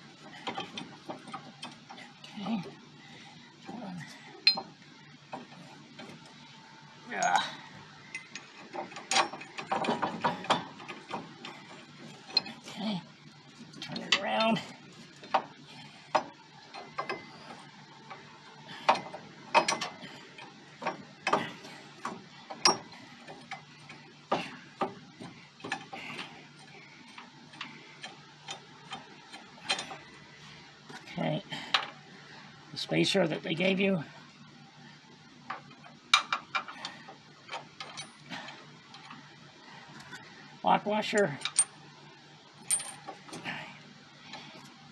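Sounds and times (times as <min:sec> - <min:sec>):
metal parts clicking and clinking: 0:08.1 - 0:11.6, 0:18.8 - 0:24.0, 0:27.5 - 0:30.1, 0:37.5 - 0:38.3, 0:41.2 - 0:41.7, 0:42.6 - 0:43.2.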